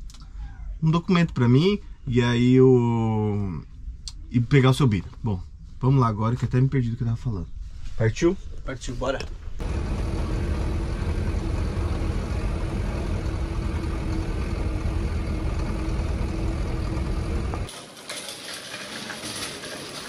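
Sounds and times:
vehicle engine and road noise: 9.3 - 17.7
steady hum: 9.6 - 17.7.

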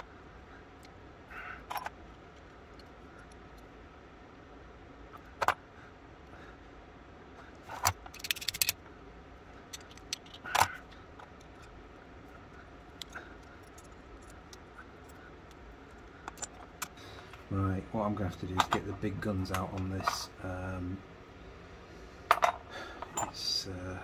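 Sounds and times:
rattle of clicks: 7.8 - 8.8.

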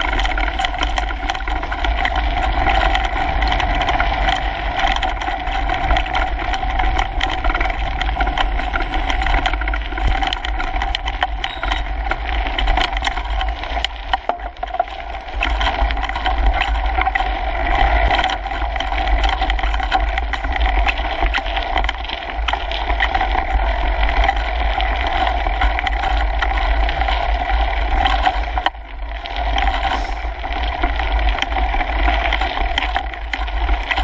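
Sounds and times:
bike rattling: 0.0 - 34.0
bike tyres rumbling on gravel: 0.0 - 34.0.

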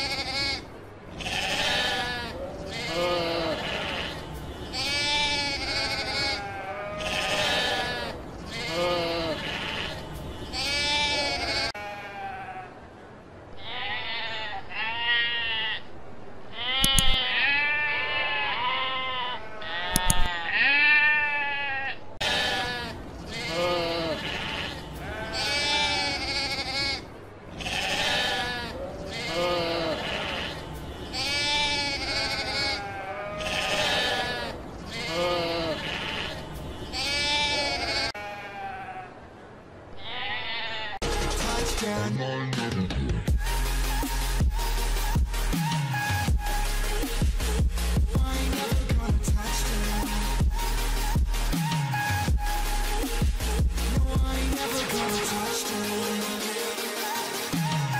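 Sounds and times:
sheep bleating: 0.0 - 12.8, 13.6 - 15.9, 16.5 - 39.2, 39.9 - 41.0
sharp clicks: 16.8 - 17.2, 19.9 - 20.3.

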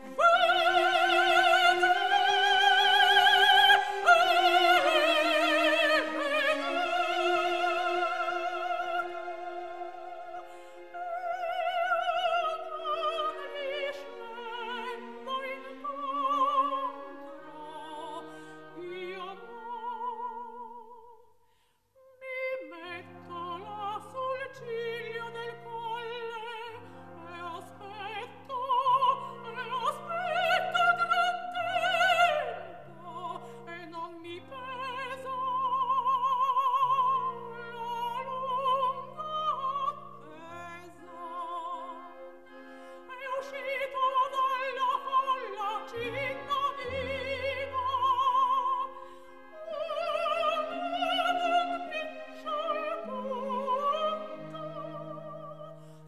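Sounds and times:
opera singer with vibrato: 0.0 - 21.3, 22.0 - 56.0
orchestral accompaniment: 22.7 - 56.0.

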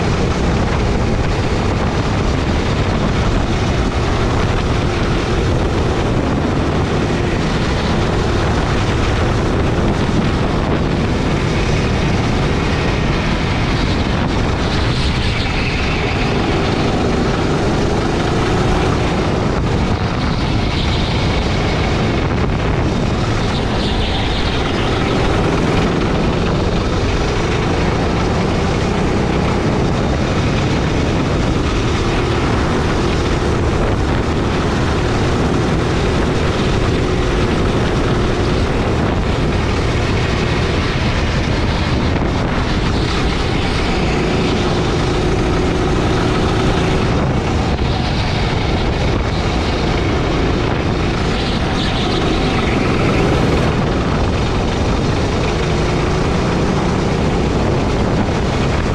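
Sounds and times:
go-kart engine: 0.0 - 58.9.

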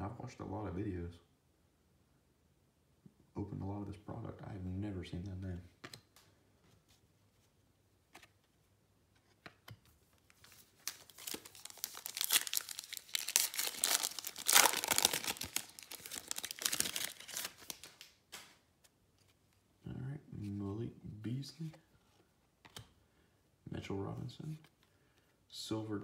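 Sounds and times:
wrapper tearing and crinkling: 10.6 - 18.2.

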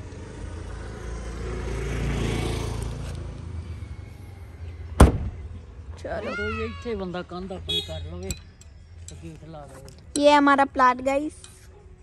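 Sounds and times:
car tailgate slamming: 5.0 - 5.4.

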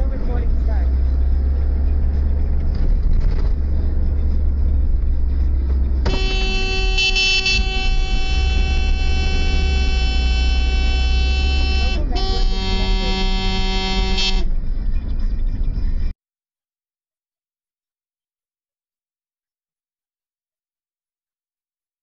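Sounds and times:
car driving rumble: 0.0 - 16.1
long vehicle horn blast: 6.0 - 14.5.

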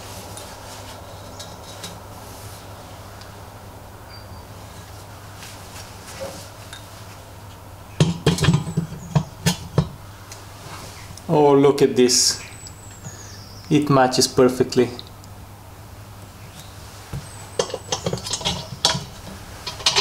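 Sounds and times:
faint handling sounds: 0.0 - 3.4, 4.5 - 7.6
metal clanks and knocks: 8.0 - 10.0, 17.2 - 20.0.

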